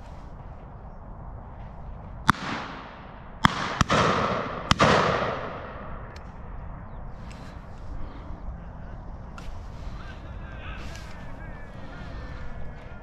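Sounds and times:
shotgun shots with echo: 2.3 - 6.1.

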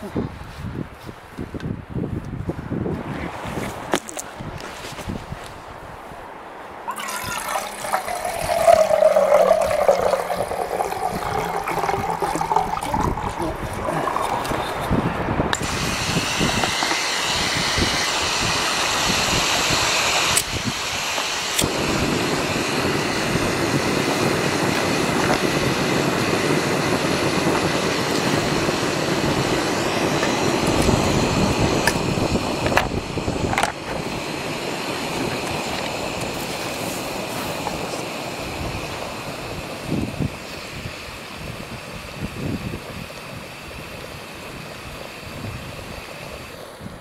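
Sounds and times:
gas burner rushing: 6.9 - 47.0
gas hissing from burner: 6.9 - 47.0
lighter igniting gas: 15.5 - 40.8.

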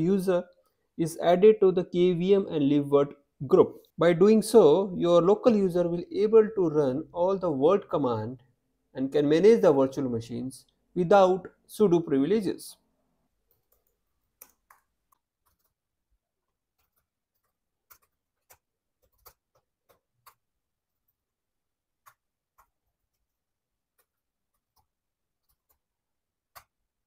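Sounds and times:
computer keys clicking: 13.4 - 15.8, 16.4 - 21.2, 22.0 - 25.9.

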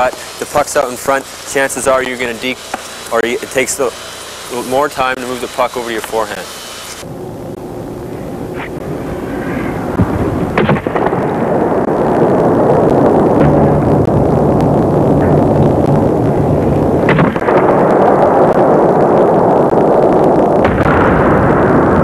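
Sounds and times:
loud steady noise: 0.0 - 22.0.

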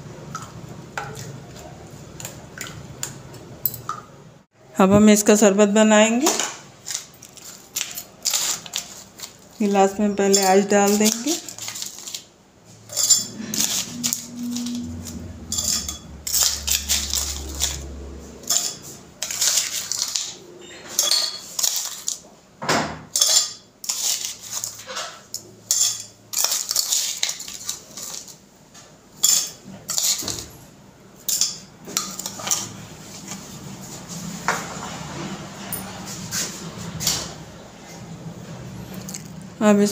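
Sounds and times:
crushed ice rattling: 6.8 - 9.8, 10.4 - 12.3, 12.9 - 20.4
spoon clinking on plate and glasses: 18.4 - 21.8.

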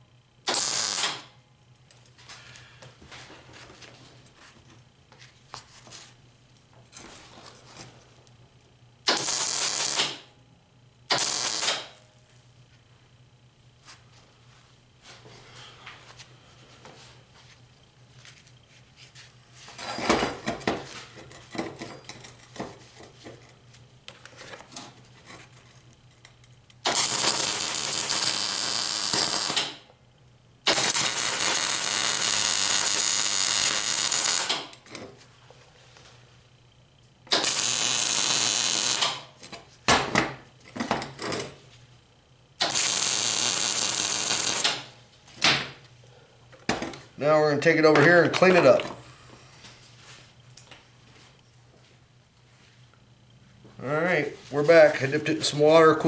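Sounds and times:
welding arc crackle and hiss: 0.4 - 1.3, 9.0 - 10.3, 11.1 - 12.0, 26.8 - 29.9, 30.6 - 34.8, 37.3 - 39.4, 42.6 - 45.0.

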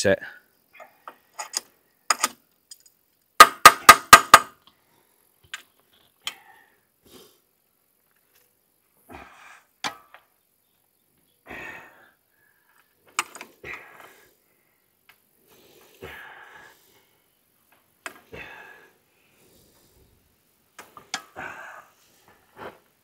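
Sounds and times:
sharp knocks: 3.4 - 4.5.

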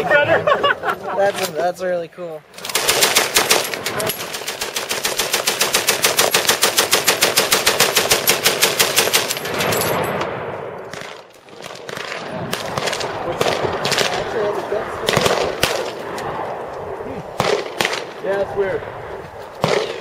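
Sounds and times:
machine gun firing a burst: 2.6 - 10.0
faint scattered gunshots: 9.5 - 16.2, 17.4 - 18.3, 19.6 - 20.0.

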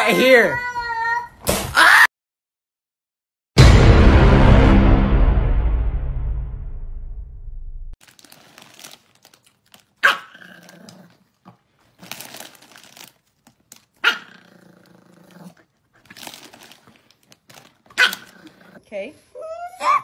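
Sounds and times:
music: 3.6 - 7.9
foil bag crinkling: 8.0 - 18.7
small dog barking and growling: 10.0 - 11.3, 14.0 - 15.6, 17.9 - 18.8, 19.6 - 20.0.

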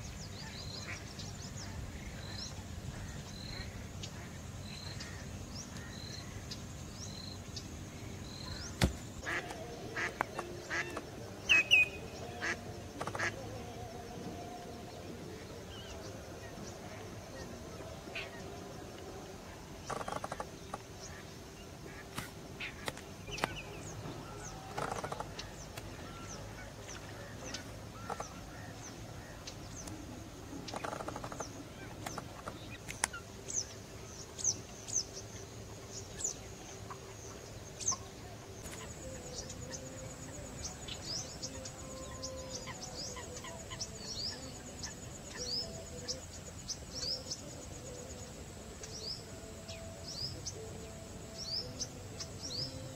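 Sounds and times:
small birds chirping: 0.0 - 52.9
louder lower bird calls: 8.3 - 13.5.

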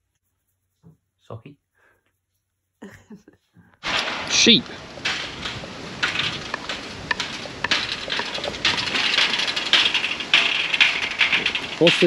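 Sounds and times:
hooves shuffling on wet ground: 3.8 - 12.0
metal hurdles rattling: 3.8 - 12.0.

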